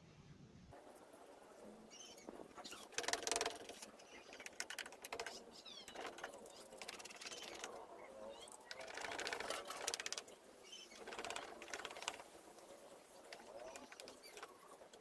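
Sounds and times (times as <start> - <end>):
fast clicking: 2.6 - 7.8, 8.6 - 10.4, 11.0 - 15.0.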